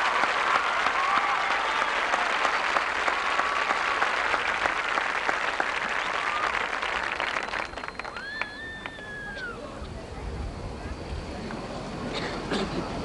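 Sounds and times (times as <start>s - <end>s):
crowd applauding: 0.0s - 9.6s.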